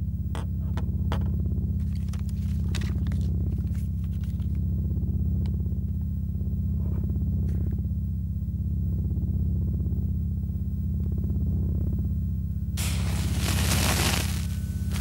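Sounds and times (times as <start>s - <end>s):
paper rustling and clicks: 1.8s - 4.6s.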